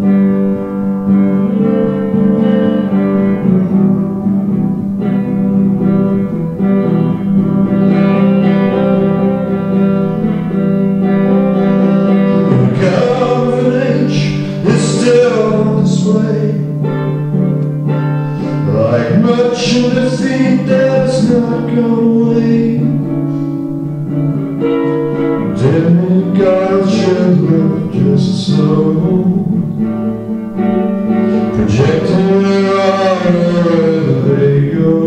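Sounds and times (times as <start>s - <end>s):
guitar chords: 0.0s - 35.0s
man singing: 11.6s - 17.2s, 18.4s - 23.2s, 25.4s - 30.1s, 31.1s - 35.0s.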